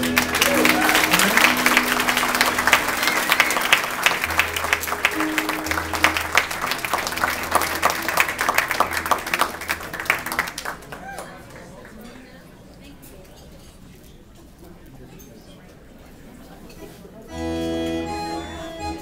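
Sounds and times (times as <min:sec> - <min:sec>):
band music: 0:00.0 - 0:10.7, 0:17.3 - 0:19.0
people clapping: 0:00.0 - 0:12.8.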